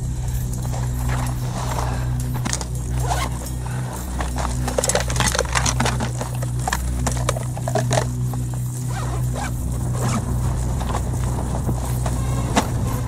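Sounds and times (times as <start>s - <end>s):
background music with low notes: 0.0s - 13.0s
plastic bottles clicking and knocking: 4.1s - 8.7s.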